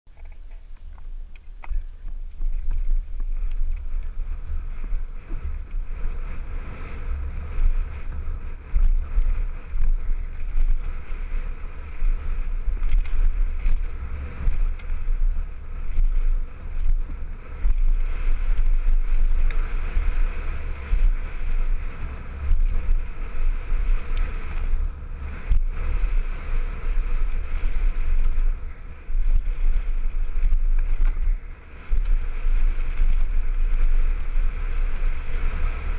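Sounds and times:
small knocks from bike: 0:00.1 - 0:04.8, 0:27.0 - 0:34.2
tyre and trail noise hiss: 0:00.1 - 0:35.9
wind rumble on microphone: 0:00.1 - 0:35.9.

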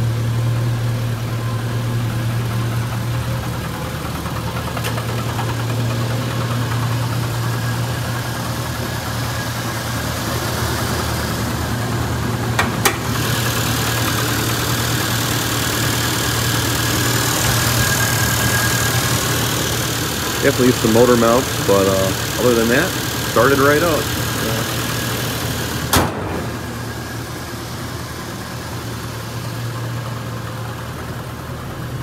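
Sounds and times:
car engine idling: 0:00.0 - 0:32.0
hood opening click: 0:12.6 - 0:13.1.

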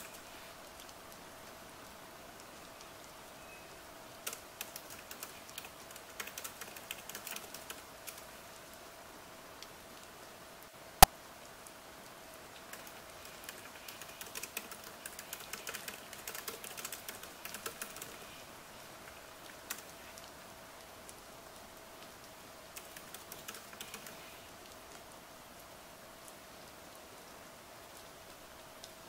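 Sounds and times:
faint rain hiss: 0:00.0 - 0:29.0
laptop keyboard typing: 0:04.2 - 0:08.2, 0:12.7 - 0:18.2, 0:22.8 - 0:24.2.

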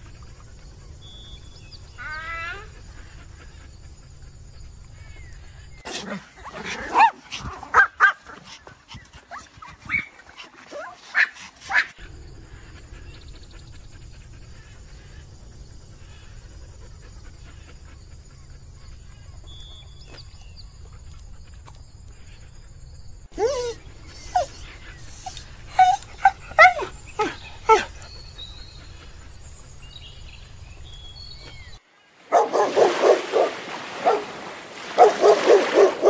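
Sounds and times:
dog barking and yelping: 0:05.9 - 0:12.0, 0:23.3 - 0:28.0, 0:32.3 - 0:36.0.

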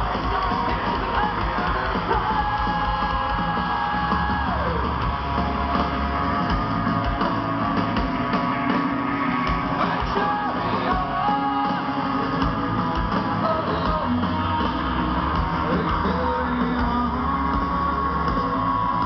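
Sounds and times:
drums: 0:00.0 - 0:19.0
electric guitars: 0:00.0 - 0:19.0
live rock band playing: 0:00.0 - 0:19.0.

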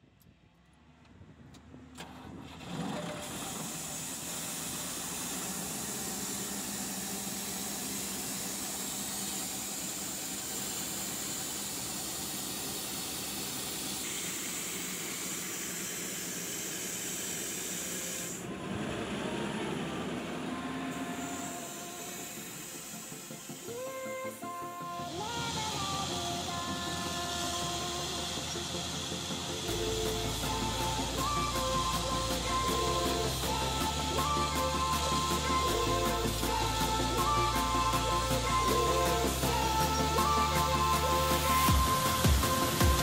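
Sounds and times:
click: 0:01.0 - 0:02.1
diesel compressor engine running: 0:01.2 - 0:43.0
strong air hiss: 0:03.5 - 0:18.4, 0:19.3 - 0:43.0.

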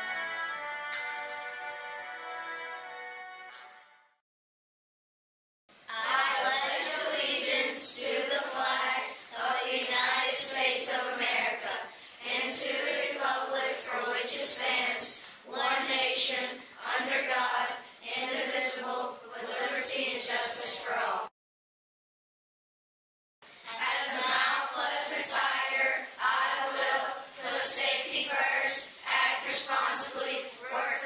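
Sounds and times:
group of voices reciting in unison: 0:05.9 - 0:21.3, 0:23.6 - 0:31.0.

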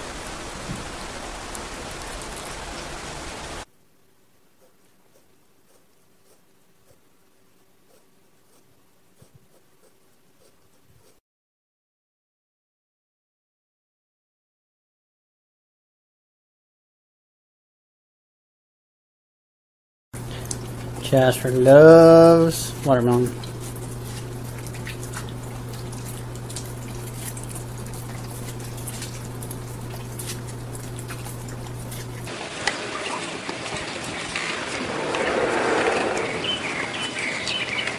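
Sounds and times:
steady low hum: 0:20.2 - 0:32.3
cat licking wet clicks: 0:22.7 - 0:32.3
dog chewing and slurping: 0:22.7 - 0:32.9.

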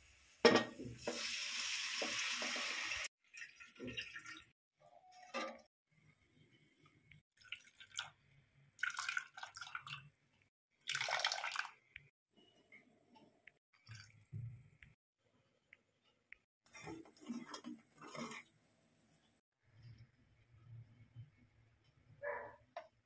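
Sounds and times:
liquid splashing through strainer: 0:10.8 - 0:11.8.

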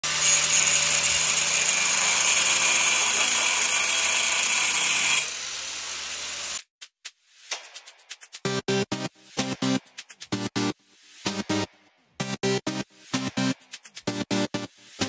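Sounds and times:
power tool running: 0:00.1 - 0:06.6.

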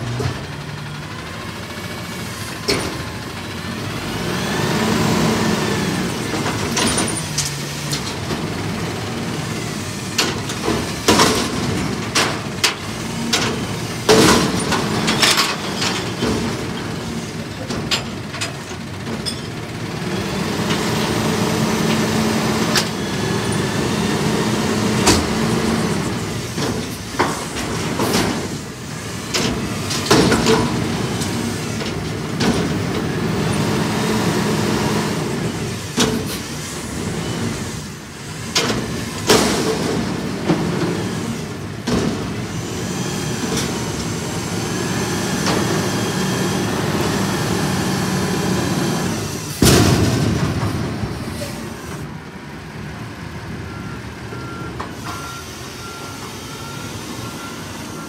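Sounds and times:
garbage truck engine drone: 0:00.0 - 0:58.0
metal dumpster clanking and banging: 0:06.1 - 0:19.8, 0:20.5 - 0:42.8, 0:46.8 - 0:52.1.

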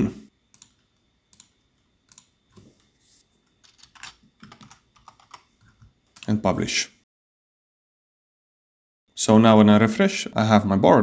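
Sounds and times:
faint keyboard typing: 0:00.5 - 0:06.4.

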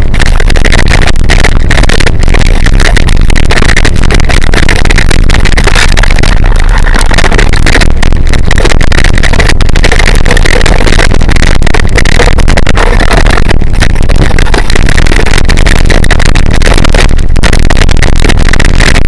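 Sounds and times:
wind rush: 0:00.0 - 0:19.0.

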